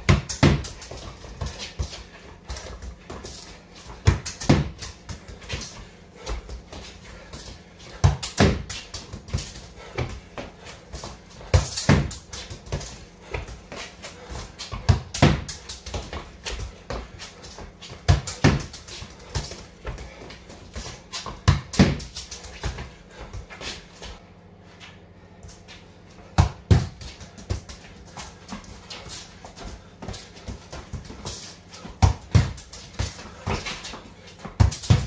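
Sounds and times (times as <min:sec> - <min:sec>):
football thudding against wall: 0:00.0 - 0:00.9, 0:04.0 - 0:05.7, 0:08.0 - 0:10.2, 0:11.0 - 0:12.9, 0:14.7 - 0:16.2, 0:18.0 - 0:18.8, 0:21.3 - 0:22.2, 0:26.4 - 0:27.7, 0:32.0 - 0:33.7
shoes scuffing on concrete: 0:00.0 - 0:35.0.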